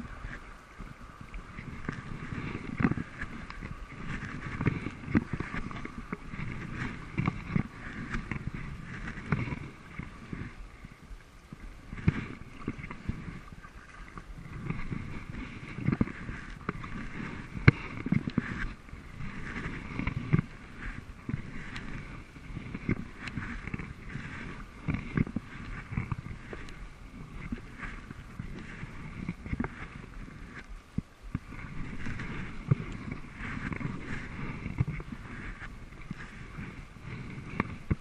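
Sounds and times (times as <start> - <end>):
paddle strokes splashing: 0.0 - 38.0
water washing along hull: 0.0 - 38.0.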